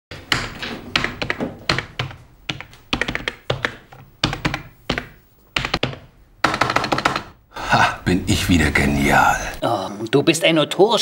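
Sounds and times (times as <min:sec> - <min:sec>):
typing on computer keyboard: 0:00.3 - 0:06.0.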